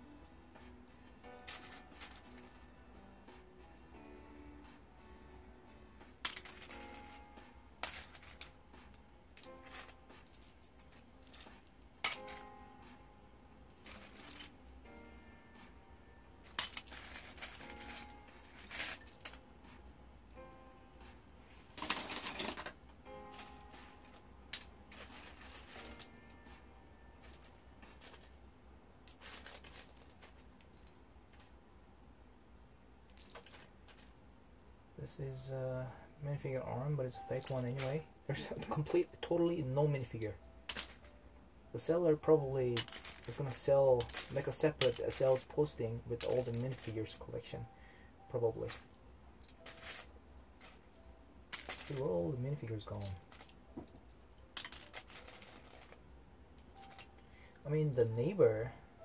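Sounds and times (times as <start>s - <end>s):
faint music: 0.0s - 59.0s
plastic bricks clattering: 16.5s - 19.4s, 23.4s - 26.1s, 29.1s - 31.5s, 33.1s - 34.1s, 40.7s - 41.1s, 42.7s - 45.5s, 49.4s - 50.8s, 51.5s - 52.1s, 54.5s - 56.0s.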